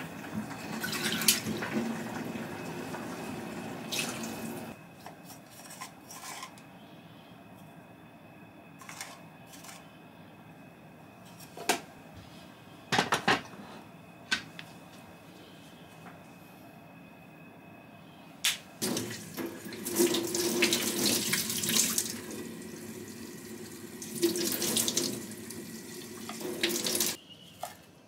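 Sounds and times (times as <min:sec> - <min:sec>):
tap water running: 0:00.0 - 0:04.8, 0:18.8 - 0:27.8.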